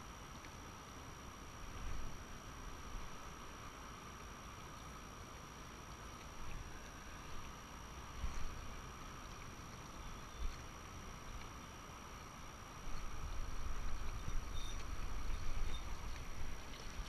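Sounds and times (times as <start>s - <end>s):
steady background hiss: 0.0s - 17.0s
wind rumbling on microphone: 12.8s - 17.0s.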